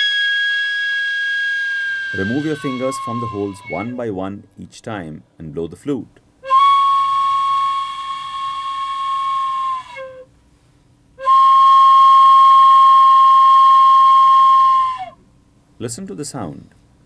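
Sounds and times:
bamboo flute held notes: 0:00.0 - 0:04.2, 0:06.4 - 0:10.3, 0:11.2 - 0:15.2.

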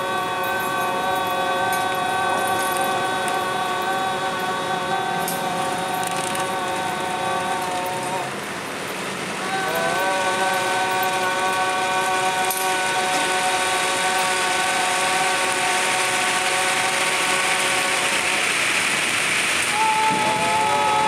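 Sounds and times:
droning steady tones: 0:00.0 - 0:21.0
gliding tone: 0:00.0 - 0:21.0
plastic fragments rustling in tube: 0:05.2 - 0:08.2.

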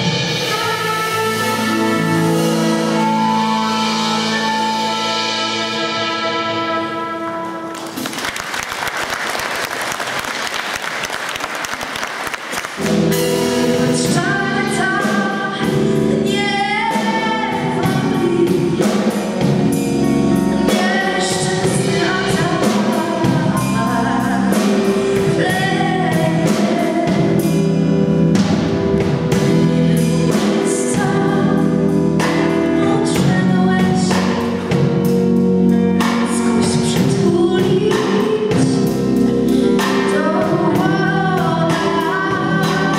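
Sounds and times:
bass guitar: 0:00.0 - 0:08.2, 0:12.6 - 0:42.9
drum kit: 0:00.0 - 0:42.9
audience applauding: 0:07.7 - 0:13.0
woman singing carol: 0:13.8 - 0:19.0, 0:20.5 - 0:27.4, 0:36.6 - 0:38.9, 0:40.0 - 0:42.9.

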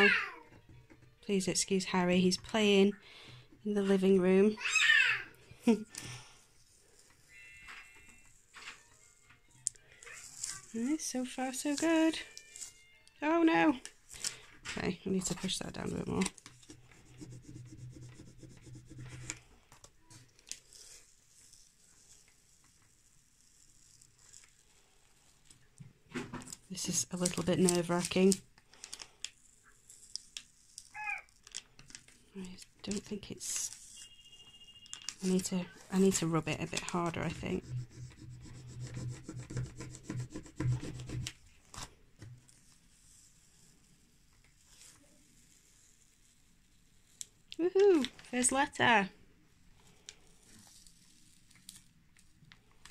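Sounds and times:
plastic card rubbing on lettering: 0:15.2 - 0:19.5, 0:20.1 - 0:25.4, 0:35.1 - 0:41.9.

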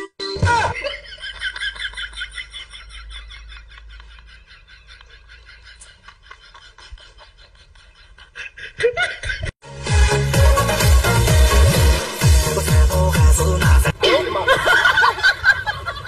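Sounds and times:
electronic dance music: 0:09.6 - 0:14.8.

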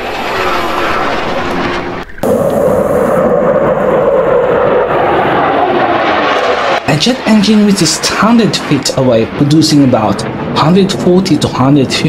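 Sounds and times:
fighter jet engine roar: 0:00.0 - 0:12.0.

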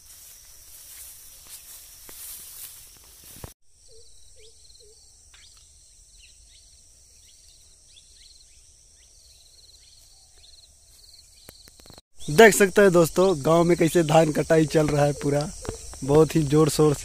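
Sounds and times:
footsteps through dry grass: 0:00.0 - 0:03.6, 0:09.8 - 0:12.0
cricket-like trills: 0:00.0 - 0:17.0
high insect drone: 0:00.0 - 0:17.0.

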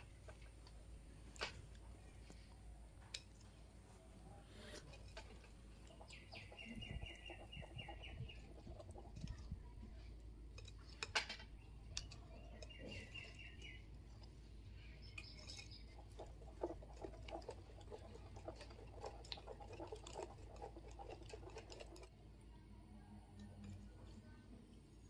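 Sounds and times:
whisk clicking against bowl: 0:15.2 - 0:22.1.

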